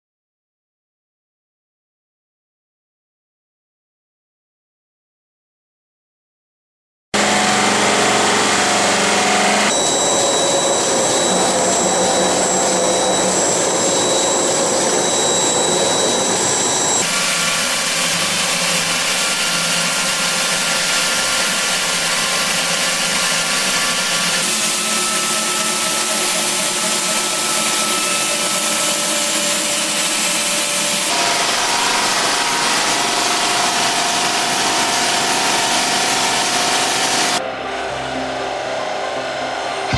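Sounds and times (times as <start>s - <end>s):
motor whine: 7.2s - 39.9s
polishing machines running: 7.2s - 39.9s.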